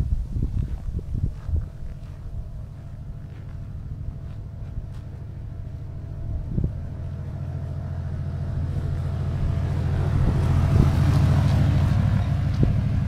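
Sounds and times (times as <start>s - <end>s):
motorcycle riding past: 2.6s - 13.0s.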